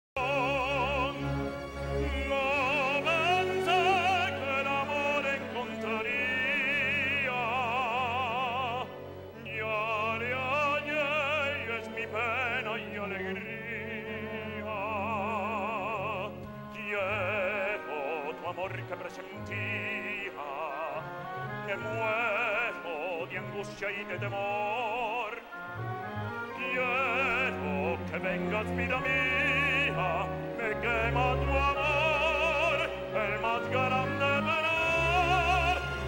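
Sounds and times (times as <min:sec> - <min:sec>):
man singing opera: 0:00.2 - 0:36.0
orchestral accompaniment: 0:00.2 - 0:36.0.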